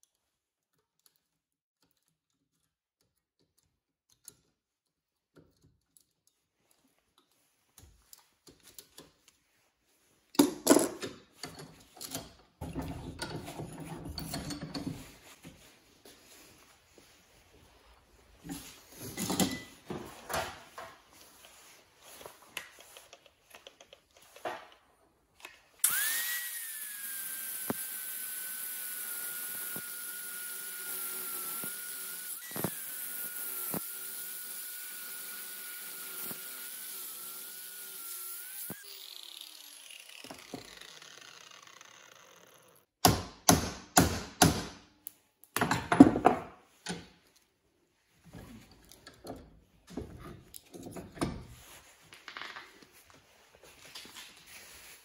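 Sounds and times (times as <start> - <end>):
angle grinder cutting steel: 25.8 - 42.9.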